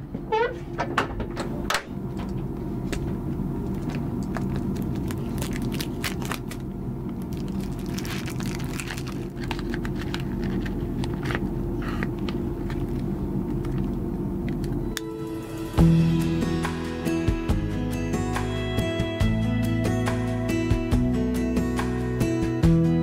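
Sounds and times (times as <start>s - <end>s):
steady low hum: 0.0s - 23.0s
cellophane crinkling and tearing: 3.8s - 11.5s.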